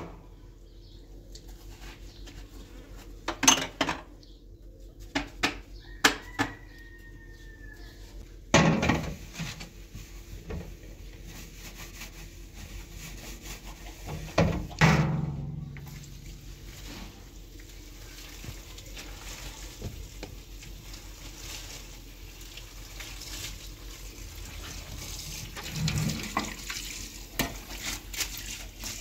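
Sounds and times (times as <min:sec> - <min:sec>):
pots and utensils clinking: 0:03.3 - 0:04.1.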